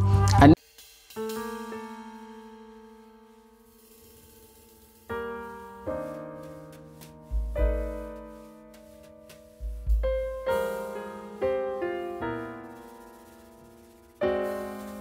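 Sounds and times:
piano chords: 0:01.2 - 0:15.0
deep bass note: 0:09.6 - 0:10.4.

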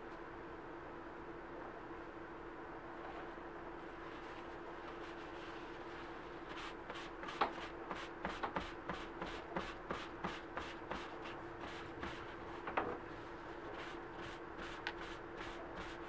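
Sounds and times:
steady low hum: 0:00.0 - 0:16.0
paper towel rubbing leather: 0:04.0 - 0:12.4, 0:13.6 - 0:16.0.

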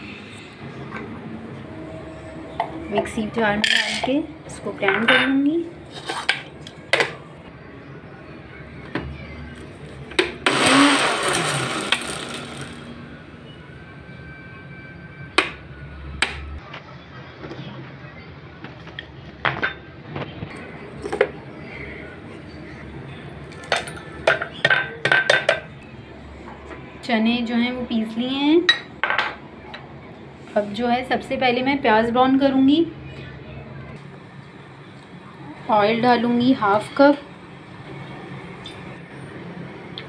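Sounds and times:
mixer grinder grinding: 0:10.2 - 0:12.9.

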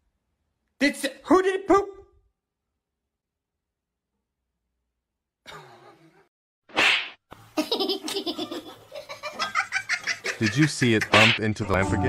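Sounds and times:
person laughing: 0:05.5 - 0:06.2.

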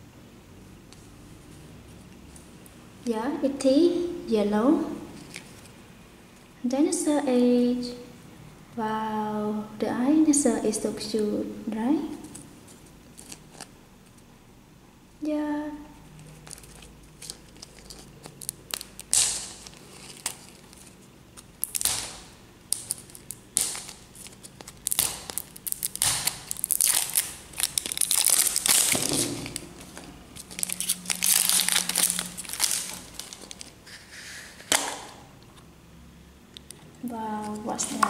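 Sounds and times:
plastic wrapper crinkling and tearing: 0:13.1 - 0:13.7, 0:16.2 - 0:34.0.

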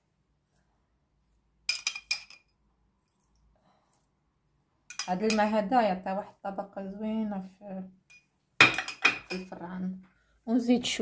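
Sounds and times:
metal spoon clinking glass: 0:01.7 - 0:02.5, 0:04.9 - 0:05.6, 0:08.1 - 0:09.5.

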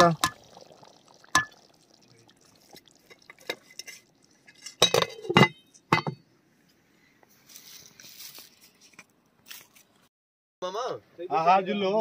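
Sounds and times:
metal ladle clanking on pot: 0:03.0 - 0:06.2.

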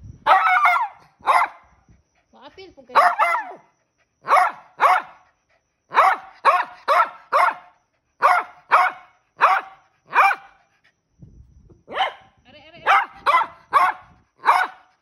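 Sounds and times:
small dog barking: 0:00.2 - 0:01.6, 0:02.9 - 0:05.2, 0:05.9 - 0:10.6, 0:11.9 - 0:14.9.

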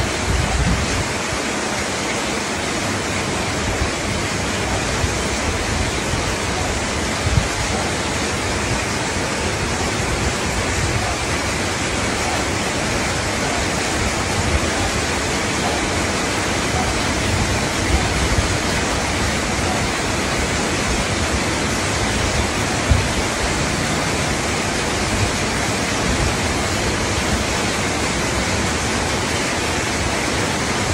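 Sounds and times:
loud steady hiss: 0:00.0 - 0:30.9.

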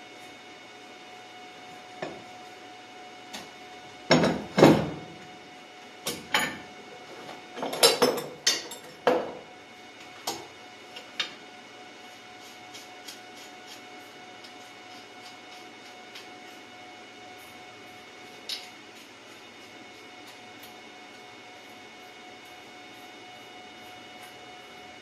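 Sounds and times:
metal tools clanking on workbench: 0:07.6 - 0:09.3.

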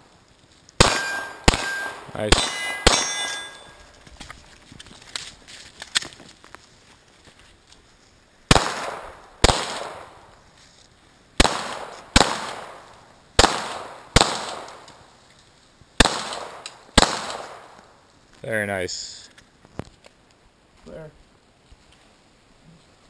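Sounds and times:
pistol shots echoing: 0:00.8 - 0:03.8, 0:08.5 - 0:10.2, 0:11.4 - 0:14.9, 0:16.0 - 0:17.8.

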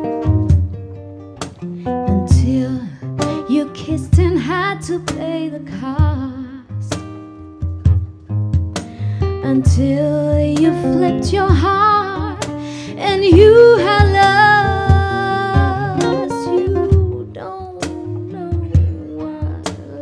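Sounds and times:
acoustic guitar: 0:00.0 - 0:20.0
woman singing: 0:02.0 - 0:07.1, 0:09.2 - 0:20.0.

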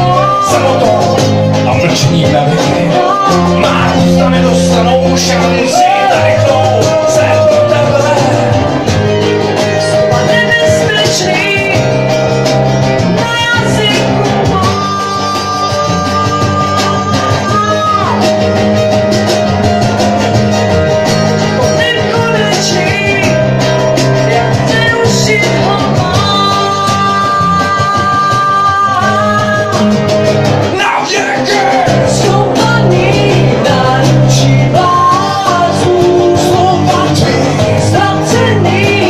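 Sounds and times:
person singing: 0:00.0 - 0:12.4, 0:13.0 - 0:18.8, 0:21.4 - 0:39.0
acoustic guitars playing chords: 0:00.0 - 0:39.0.

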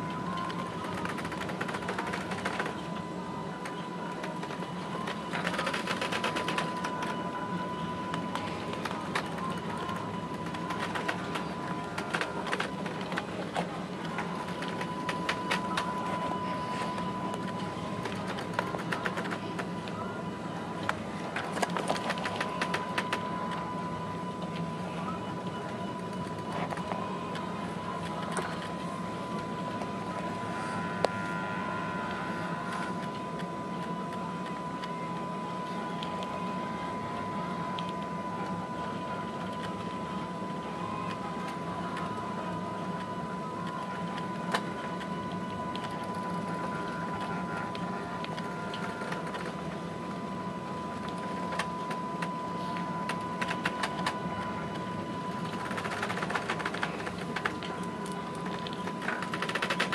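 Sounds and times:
high whine: 0:00.0 - 0:59.9
ship machinery drone: 0:00.0 - 0:59.9
steady low hum: 0:00.0 - 0:59.9.

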